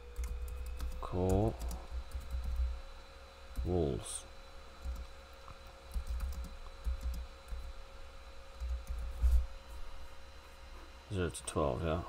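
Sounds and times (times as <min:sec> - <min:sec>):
computer keyboard typing: 0:00.1 - 0:02.8, 0:03.5 - 0:03.7, 0:04.8 - 0:07.8, 0:08.6 - 0:09.1.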